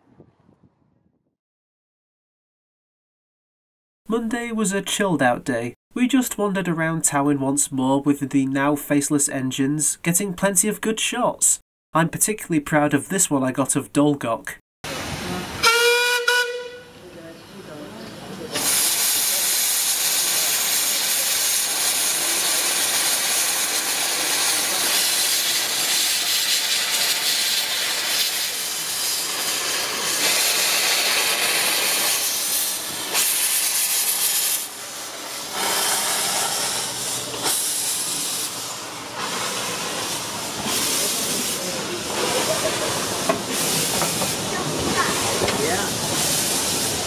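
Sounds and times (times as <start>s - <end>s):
steam locomotive hissing: 18.3s - 47.0s.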